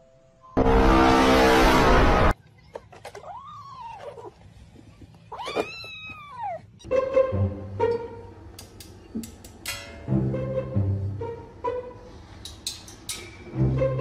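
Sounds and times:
loud rough sound: 0.6s - 2.4s.

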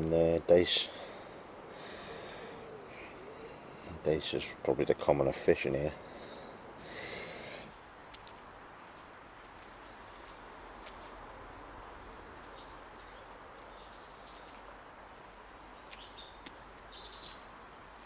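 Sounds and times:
steady background hiss: 0.0s - 18.0s
small birds chirping: 6.0s - 18.0s.

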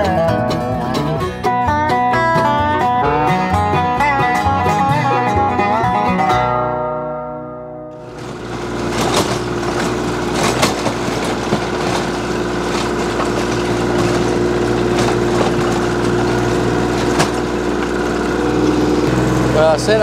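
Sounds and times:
sharp knocks: 8.0s - 17.9s
rotary tiller churning soil: 8.0s - 20.0s
tractor diesel engine running: 8.0s - 20.0s.

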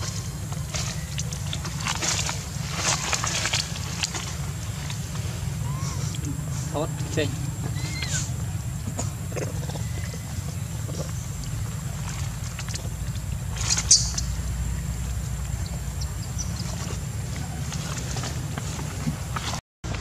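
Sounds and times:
monkey squeak: 7.7s - 8.4s.

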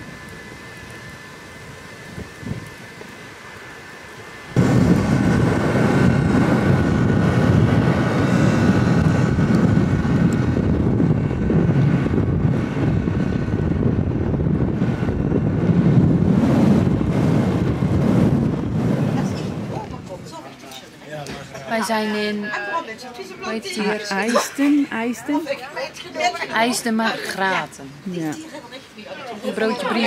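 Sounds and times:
wind buffeting microphone: 0.0s - 20.6s.

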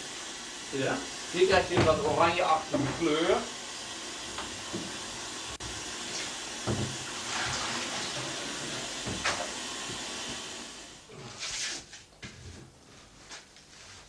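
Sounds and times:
tap water running into tray: 0.0s - 10.9s.

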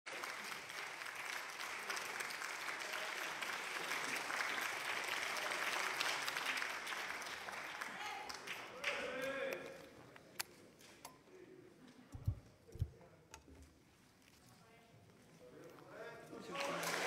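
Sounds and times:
people clapping: 0.1s - 9.9s, 16.4s - 17.0s.

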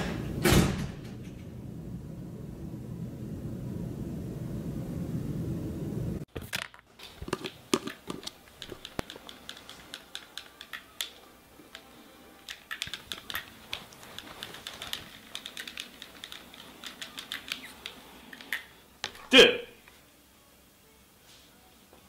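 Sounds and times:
light sharp clicks and taps: 7.3s - 11.9s.

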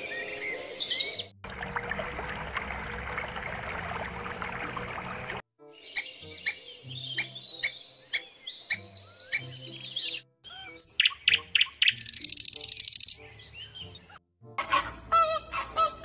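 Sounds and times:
bird calling and trilling: 5.8s - 14.2s.

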